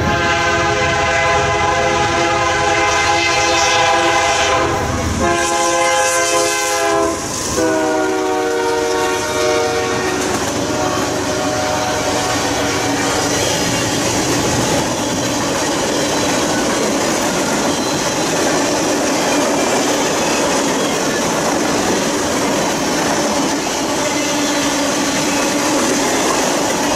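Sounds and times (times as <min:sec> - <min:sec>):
locomotive air horn blasts: 0:00.0 - 0:14.2
freight cars rumbling over rails: 0:04.0 - 0:26.9.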